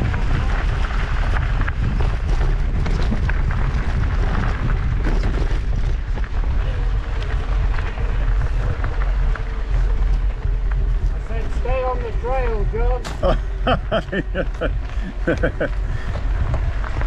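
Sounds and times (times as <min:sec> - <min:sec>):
bike rattling: 0:00.0 - 0:17.0
tyres clicking and knocking on dirt: 0:00.0 - 0:17.0
wind buffeting microphone: 0:00.0 - 0:17.0.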